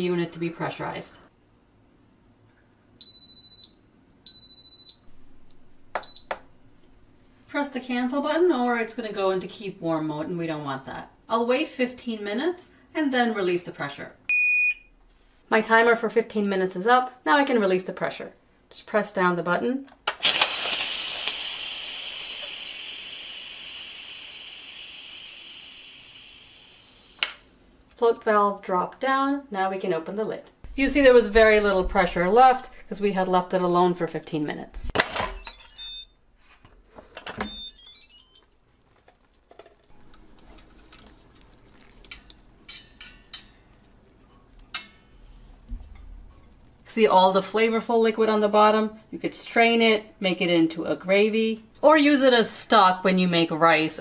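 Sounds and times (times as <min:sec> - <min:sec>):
pressure cooker venting steam: 0:20.1 - 0:27.2.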